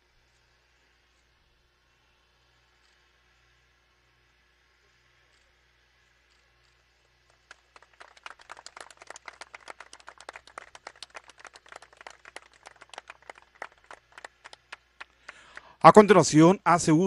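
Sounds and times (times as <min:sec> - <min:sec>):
people clapping: 0:07.2 - 0:16.0.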